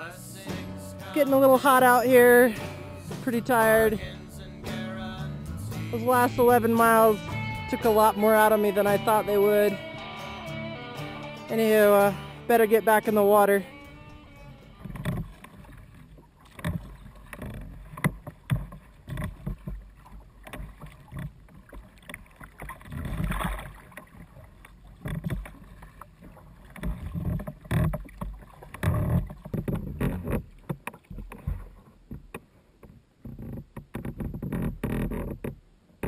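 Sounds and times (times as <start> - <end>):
waves slapping against kayak hull: 0.0 - 9.8, 11.5 - 36.0
sharp water splashes: 11.6 - 31.8.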